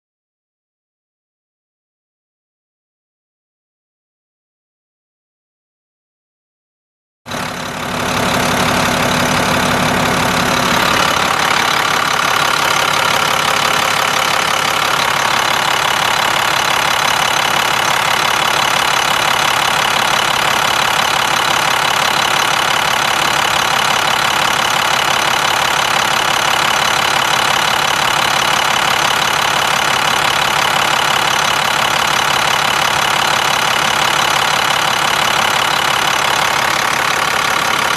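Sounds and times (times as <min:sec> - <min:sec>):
diesel engine idling: 0:07.3 - 0:37.9.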